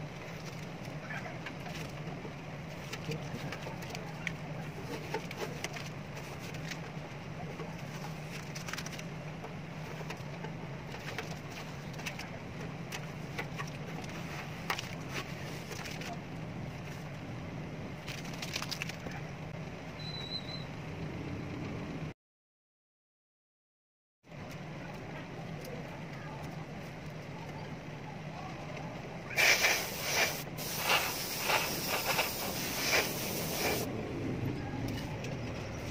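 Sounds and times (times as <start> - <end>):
steady low hum: 24.3 - 35.9.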